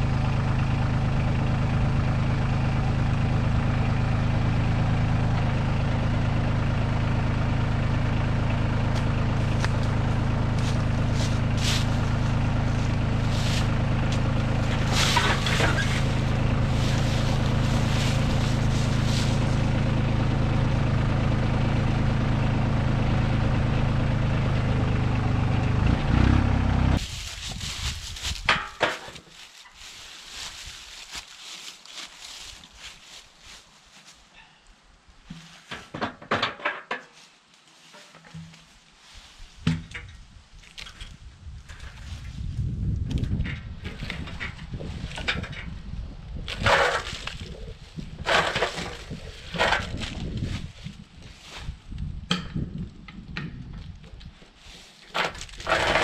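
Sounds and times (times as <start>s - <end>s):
tractor engine idling: 0.0s - 34.6s, 41.0s - 56.0s
footsteps crunching through dry leaves: 8.9s - 20.8s, 27.0s - 34.6s, 37.0s - 39.6s, 41.7s - 42.7s, 46.9s - 52.0s, 54.5s - 56.0s
quiet rustling: 9.4s - 19.7s, 27.0s - 34.6s.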